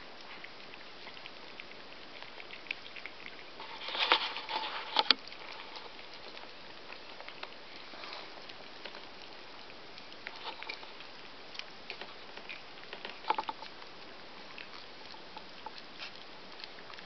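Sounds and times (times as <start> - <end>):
rustling and sharp clicks: 0.2 - 17.0
puppy paws scratching on newspaper: 3.4 - 11.2.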